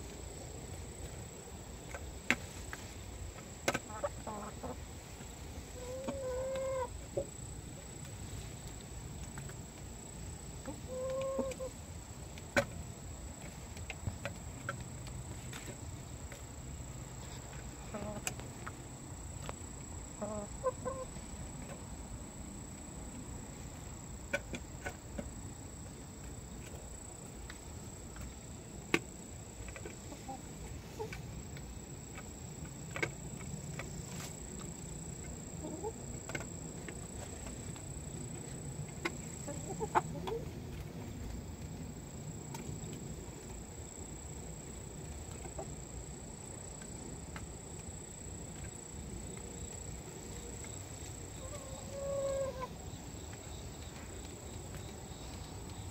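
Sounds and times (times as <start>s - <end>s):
hens clucking: 3.6s - 7.3s, 10.6s - 11.8s, 17.2s - 18.8s, 20.2s - 21.9s, 29.7s - 31.4s, 35.5s - 36.4s, 38.9s - 40.8s, 50.7s - 54.0s.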